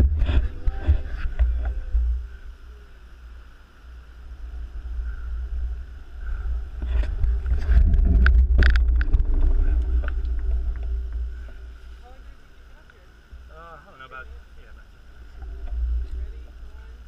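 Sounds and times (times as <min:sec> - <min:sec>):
wind buffeting microphone: 0:04.1 - 0:12.4.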